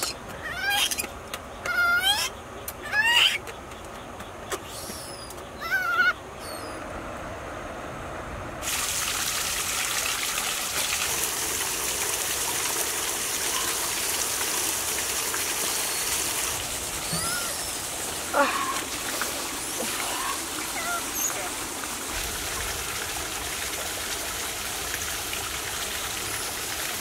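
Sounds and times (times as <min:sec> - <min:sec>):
baby monkey squeaking: 0:00.0 - 0:03.5, 0:04.6 - 0:06.8, 0:17.0 - 0:17.8
running water hiss: 0:08.6 - 0:27.0.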